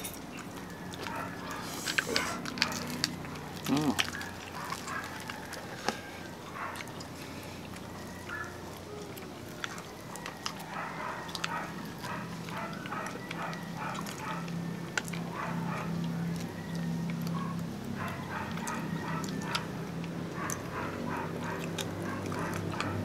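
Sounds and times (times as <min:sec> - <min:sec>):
crunching and chewing: 0:00.0 - 0:23.0
sharp cracks of bones bitten: 0:01.8 - 0:06.1.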